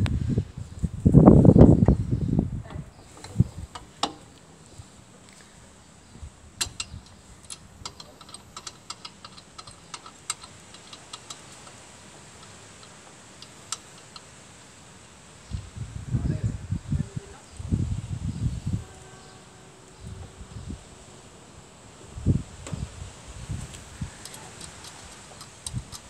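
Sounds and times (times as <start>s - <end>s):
light metallic clicks and ticks: 2.7s - 4.5s, 6.6s - 14.4s, 24.2s - 26.0s.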